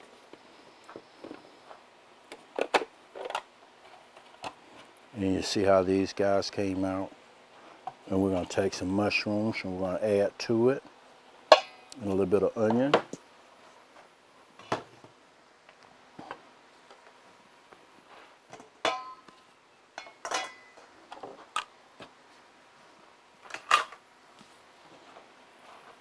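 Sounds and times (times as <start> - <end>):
dishes and utensils clinking: 20.0 - 20.8.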